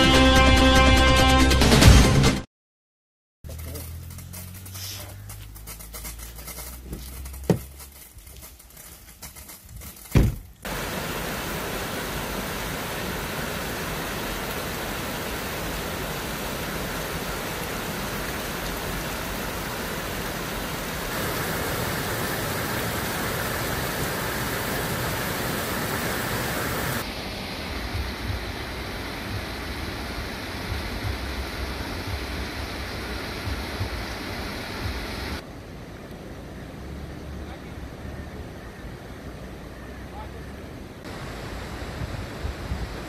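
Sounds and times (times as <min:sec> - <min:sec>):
stream flowing over rocks: 0:10.7 - 0:35.4.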